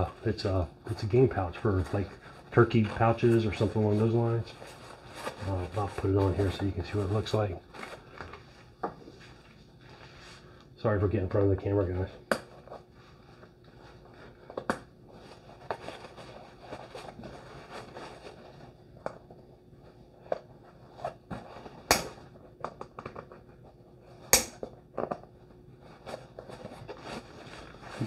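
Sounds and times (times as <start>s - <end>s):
nylon webbing scraping and rustling: 0.0s - 10.5s, 15.1s - 18.8s, 25.8s - 28.0s.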